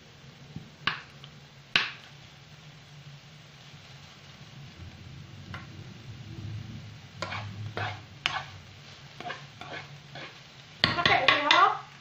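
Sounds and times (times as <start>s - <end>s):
spoon clacking and scraping pan: 7.2s - 11.8s.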